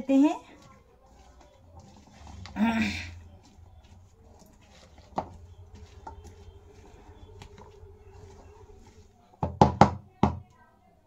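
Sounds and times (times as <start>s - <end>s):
spatula stirring salad in a bowl: 0.4s - 9.2s.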